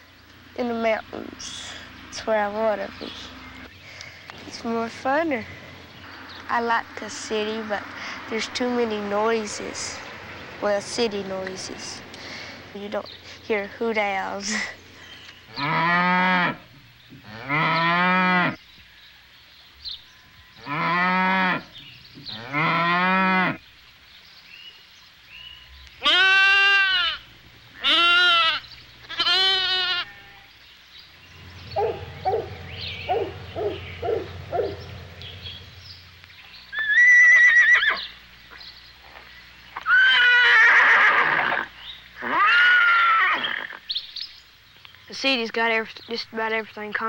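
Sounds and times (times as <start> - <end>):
livestock bleating: 26.0 - 27.2, 27.8 - 30.6.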